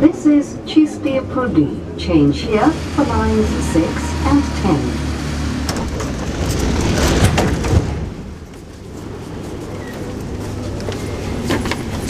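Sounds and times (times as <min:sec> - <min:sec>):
low hum of standing train: 0:00.0 - 0:12.0
metro car doors clattering open: 0:05.4 - 0:08.5.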